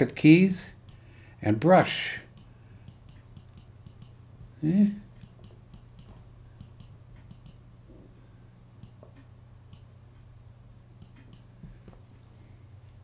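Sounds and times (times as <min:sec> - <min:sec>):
steady low hum: 0:00.0 - 0:13.0
mouse and keyboard clicks: 0:05.2 - 0:07.6.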